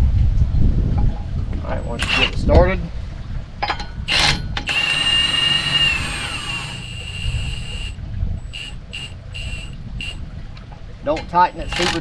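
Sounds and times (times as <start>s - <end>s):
impact gun whining: 2.0s - 2.4s, 4.1s - 10.2s, 11.5s - 12.0s
impact gun trigger bursts: 4.1s - 10.2s.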